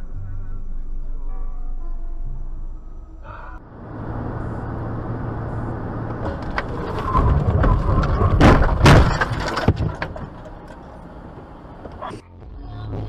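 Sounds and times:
car engine and road noise: 0.8 - 13.0
car collision impacts: 3.8 - 12.1.

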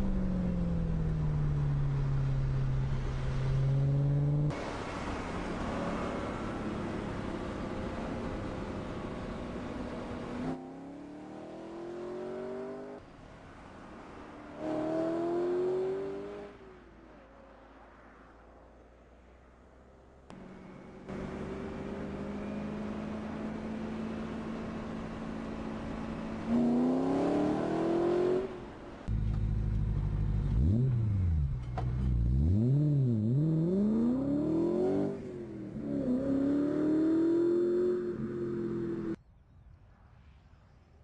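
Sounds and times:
car engine revving: 21.1 - 39.2.

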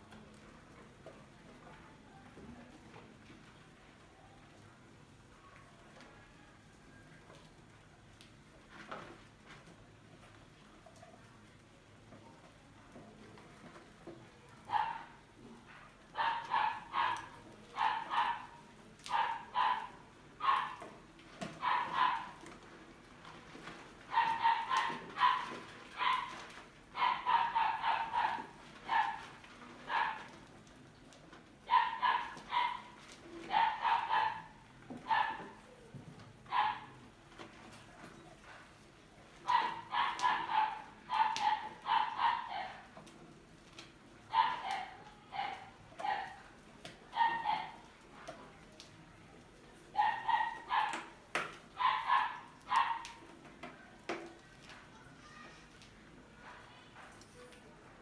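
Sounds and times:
dog barking: 14.7 - 15.2, 15.8 - 20.8, 21.6 - 22.4, 24.1 - 26.4, 27.0 - 29.2, 29.9 - 30.3, 31.7 - 35.6, 36.5 - 37.0, 39.5 - 42.8, 44.3 - 46.4, 47.1 - 47.8, 49.9 - 51.1, 51.8 - 53.2.

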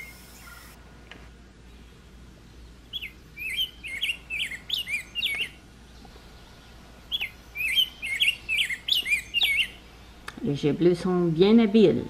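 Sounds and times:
bird chirping: 0.0 - 0.8, 1.7 - 10.7.

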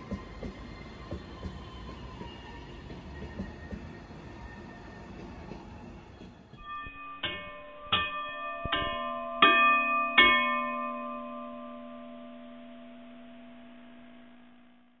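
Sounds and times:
bell-like chimes ringing: 6.6 - 14.9.

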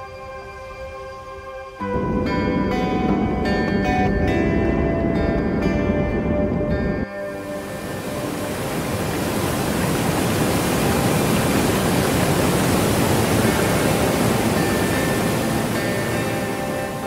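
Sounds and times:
waterfall roaring: 7.4 - 17.0.

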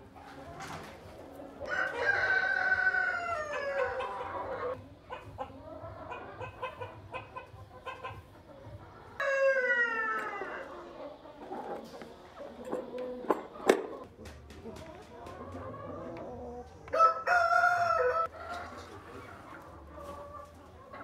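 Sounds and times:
hens clucking: 0.0 - 21.0
rooster crowing: 1.7 - 4.0, 9.2 - 10.6, 16.9 - 18.4.

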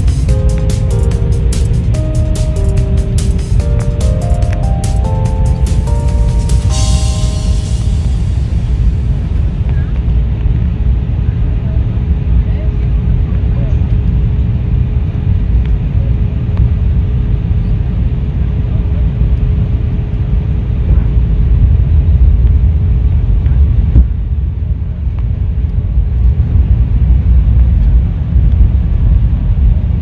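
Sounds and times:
jet engine cabin rumble: 6.7 - 30.0.

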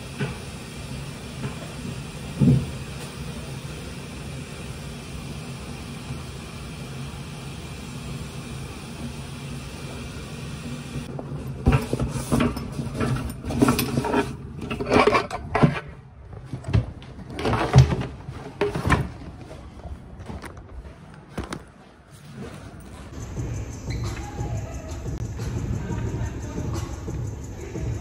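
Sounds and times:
bag rustling and knocking: 16.2 - 23.2.

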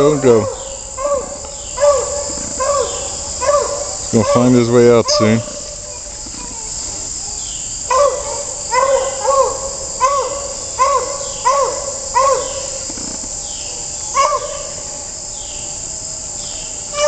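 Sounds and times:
distant dog baying: 0.0 - 6.8, 7.8 - 12.8, 14.1 - 14.9
crickets droning: 0.0 - 17.0.

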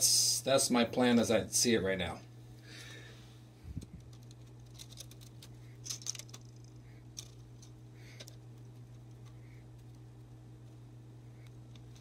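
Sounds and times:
steady low hum: 0.0 - 12.0
wire clicks and rustles: 3.6 - 12.0.

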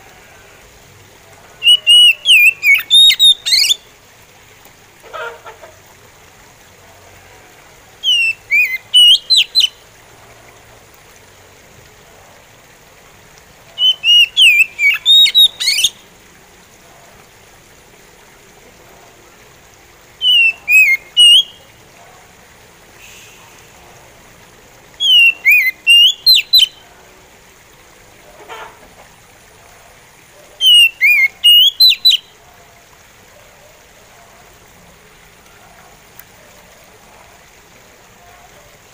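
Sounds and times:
bird singing whistled notes: 1.6 - 3.8, 8.0 - 9.8, 13.8 - 16.0, 20.2 - 21.6, 25.0 - 26.8, 30.6 - 32.3.

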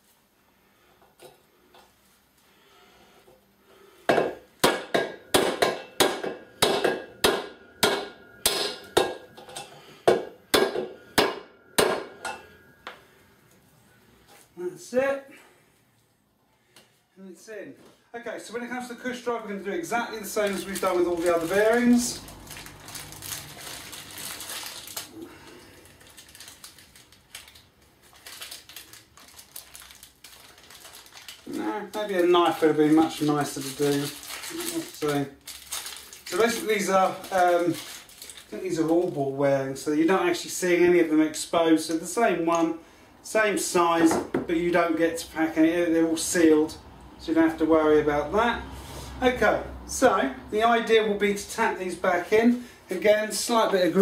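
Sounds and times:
hammer striking metal: 4.1 - 13.0.

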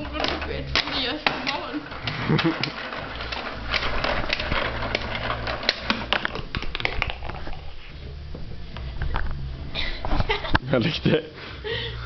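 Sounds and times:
plastic game pieces clicking: 0.1 - 7.4
low hum: 1.7 - 10.8.

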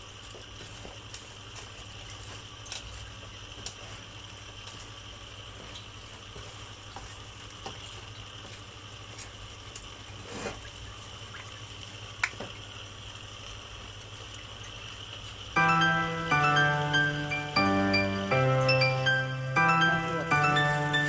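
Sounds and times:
food simmering in a pan: 0.0 - 15.6
low steady hum: 14.3 - 21.0.

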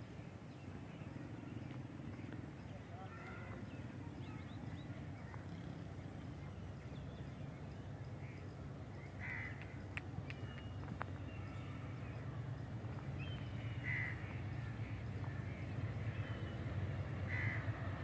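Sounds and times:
train approaching with low rumble: 0.0 - 18.0
bird cawing: 9.2 - 9.7, 13.8 - 14.3, 17.3 - 17.8.

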